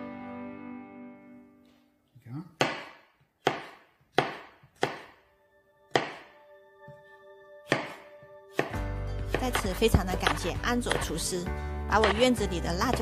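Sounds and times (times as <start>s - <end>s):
knife chopping on plastic board: 2.6s - 5.2s, 5.9s - 6.4s, 7.7s - 11.3s, 11.9s - 13.0s
faint background music: 4.2s - 13.0s.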